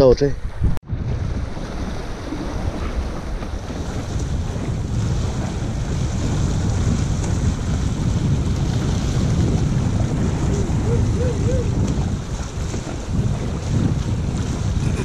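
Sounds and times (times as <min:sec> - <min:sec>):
wind buffeting microphone: 0:00.0 - 0:15.0
sea waves against rocks: 0:00.4 - 0:15.0.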